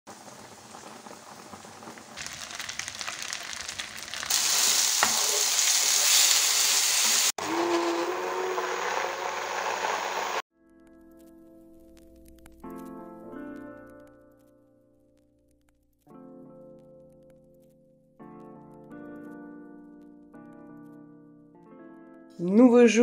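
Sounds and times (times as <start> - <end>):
meatballs sizzling in a pan: 0.1 - 7.4
pasta water boiling: 0.1 - 10.4
immersion blender whirring: 6.8 - 10.4.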